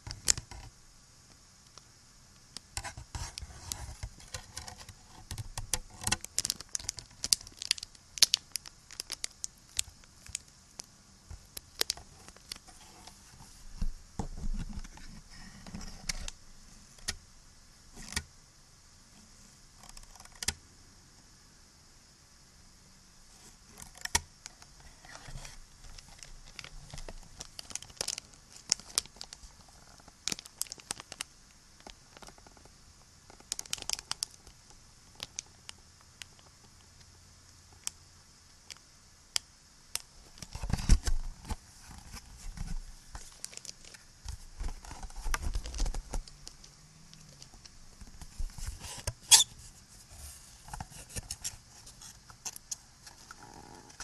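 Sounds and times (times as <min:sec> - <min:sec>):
recording hiss: 0:00.0 - 0:54.0
crinkling and scratching: 0:02.8 - 0:16.4, 0:23.4 - 0:32.7, 0:33.3 - 0:34.6, 0:40.2 - 0:54.0.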